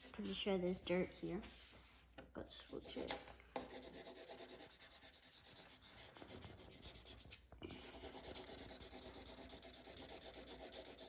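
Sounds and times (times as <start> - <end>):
marker scribbling on paper: 2.7 - 11.0.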